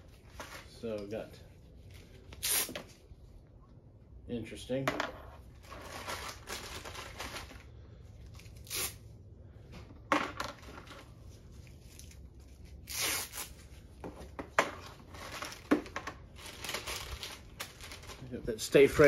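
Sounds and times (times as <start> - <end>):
plastic packaging rustling: 5.5 - 8.6, 14.8 - 18.3.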